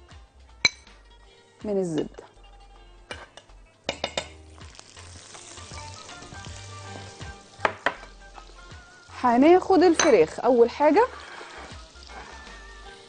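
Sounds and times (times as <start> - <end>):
butter sizzling in hot oil: 3.9 - 13.0.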